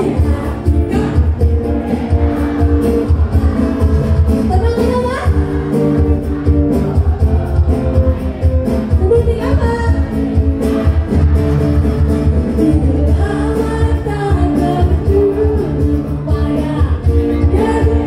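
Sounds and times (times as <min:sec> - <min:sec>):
live band singing over a beat: 0:00.0 - 0:18.0.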